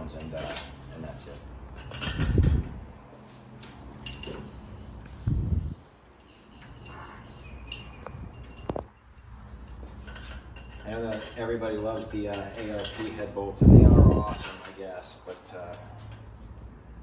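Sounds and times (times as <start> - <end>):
metal bolts clinking: 0.0 - 0.8, 1.7 - 2.8, 4.0 - 4.6, 6.1 - 14.9.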